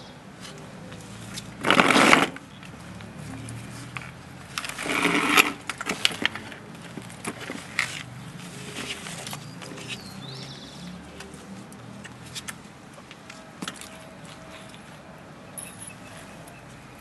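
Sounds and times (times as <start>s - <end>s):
plastic sandals scraping on tiles: 0.4s - 2.5s, 3.1s - 10.3s.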